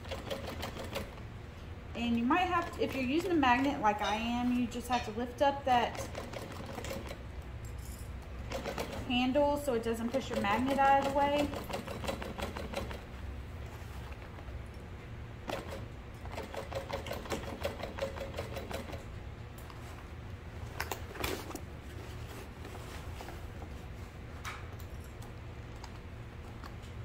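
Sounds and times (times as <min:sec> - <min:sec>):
sewing machine stitching: 0:00.0 - 0:01.2, 0:05.8 - 0:07.2, 0:08.5 - 0:09.3, 0:10.0 - 0:13.1, 0:15.4 - 0:19.0.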